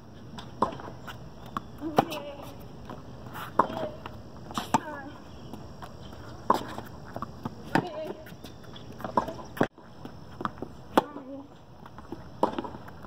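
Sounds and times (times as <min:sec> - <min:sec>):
tennis ball hits: 0:03.5 - 0:04.0, 0:09.0 - 0:09.7, 0:10.4 - 0:11.3, 0:12.4 - 0:13.0.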